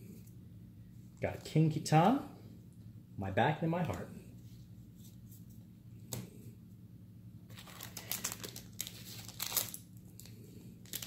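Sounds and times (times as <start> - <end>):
foil pack crinkling: 7.5 - 11.0.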